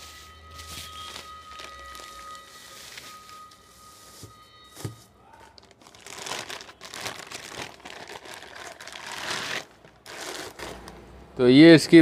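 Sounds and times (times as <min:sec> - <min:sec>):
plastic bag crinkling: 0:00.7 - 0:02.4, 0:05.6 - 0:11.0.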